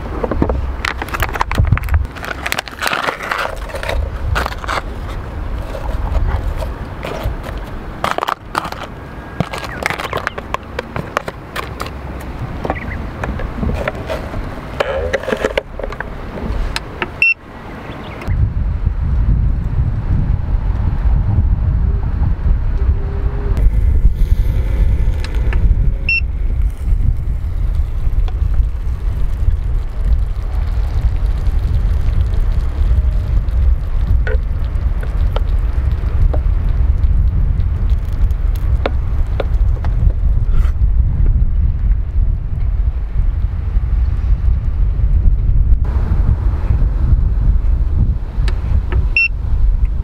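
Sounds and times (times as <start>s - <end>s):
low steady rumble: 0.0s - 50.0s
wind buffeting microphone: 0.0s - 50.0s
crackly rustles: 0.1s - 17.0s, 23.6s - 40.8s.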